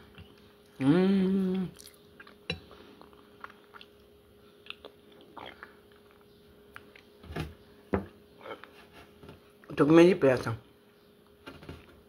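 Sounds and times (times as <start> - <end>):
person humming: 0.8 - 1.8
person chewing: 1.5 - 7.1.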